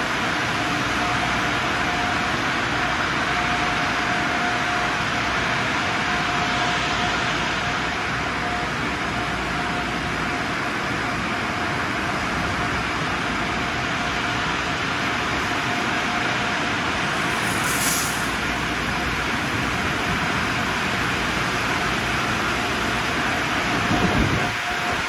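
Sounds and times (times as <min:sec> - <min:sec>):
faint steady whine: 0:00.0 - 0:25.0
water spraying and pouring: 0:17.2 - 0:18.3
short hiss: 0:17.4 - 0:18.3.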